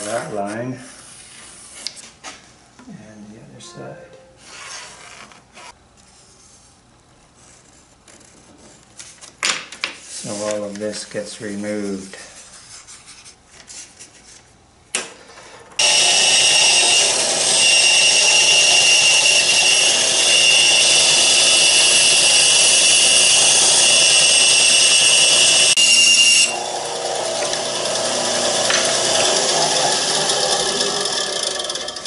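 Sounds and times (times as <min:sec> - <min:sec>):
bandsaw cutting wood: 0:15.8 - 0:32.0.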